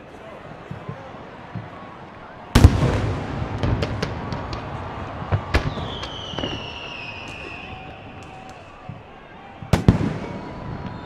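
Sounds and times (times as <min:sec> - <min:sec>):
falling firework whistle: 0:02.5 - 0:11.0
firework cracks: 0:02.5 - 0:11.0.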